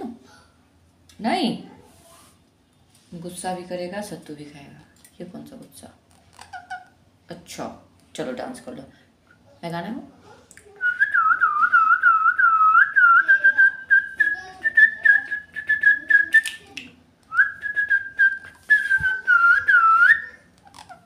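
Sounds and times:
person whistling a tune: 10.9s - 16.6s, 17.4s - 20.3s.

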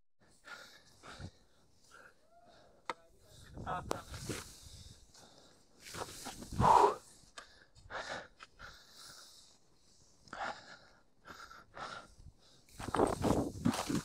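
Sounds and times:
skis whooshing through powder snow: 5.8s - 6.8s, 12.8s - 14.0s.

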